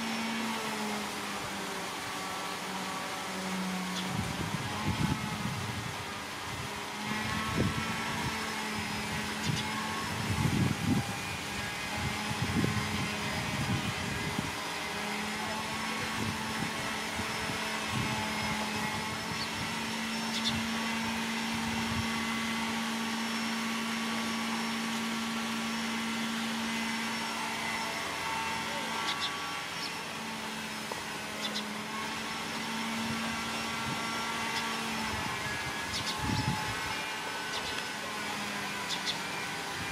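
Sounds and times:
low mechanical hum: 0.0s - 39.9s.

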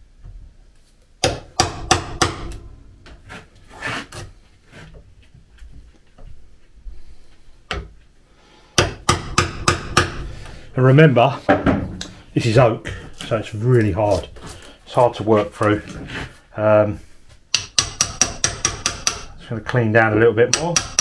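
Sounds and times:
hammer striking steel chisel: 1.2s - 3.2s, 8.8s - 10.6s, 17.5s - 19.4s, 20.5s - 21.0s.

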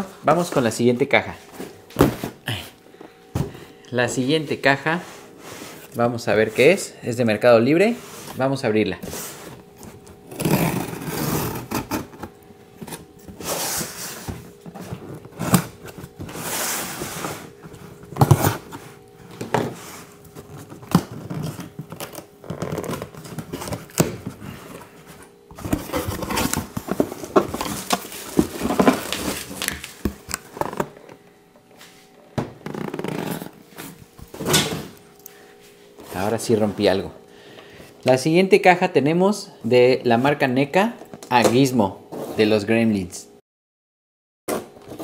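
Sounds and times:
cardboard box being opened: 9.4s - 18.8s, 25.5s - 30.9s.

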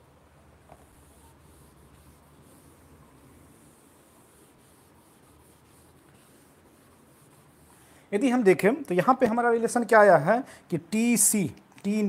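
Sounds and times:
low steady hum: 0.0s - 9.0s
duster rubbing on whiteboard: 0.6s - 8.0s.

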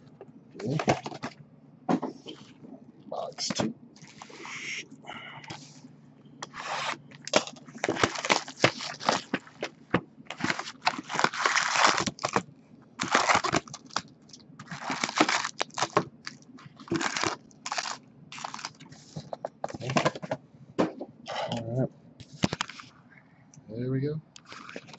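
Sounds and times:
foil wrappers crinkling: 4.0s - 4.8s, 6.4s - 20.2s, 22.2s - 22.9s, 24.4s - 24.9s
packs scraping cardboard box: 6.4s - 12.4s, 13.0s - 14.0s, 14.6s - 20.2s.

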